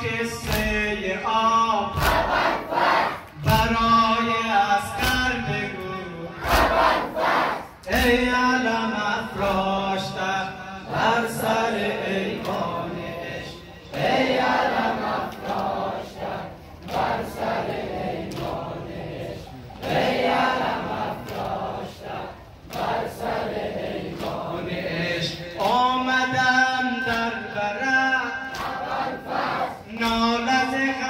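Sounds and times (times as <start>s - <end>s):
men chanting a lament: 0.0s - 31.0s
hands slapping chests: 28.5s - 28.9s.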